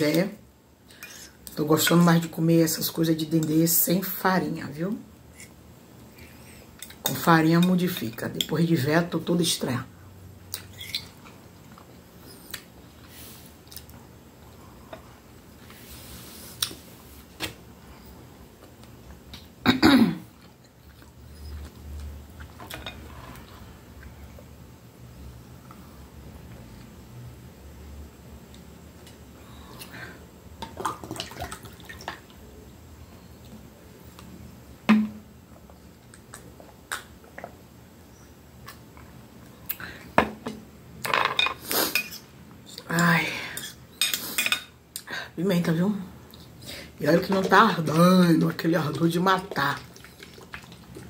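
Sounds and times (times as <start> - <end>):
woman coughing: 19.6 - 20.3
cutlery scraping on a plate: 43.6 - 44.7.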